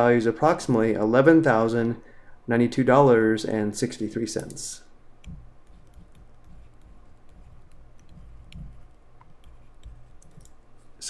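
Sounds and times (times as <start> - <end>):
stylus tapping on tablet: 5.2 - 10.6.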